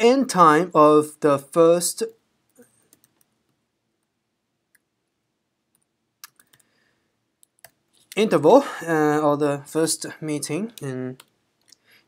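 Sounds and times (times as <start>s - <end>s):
computer keyboard keystrokes: 6.2s - 6.6s.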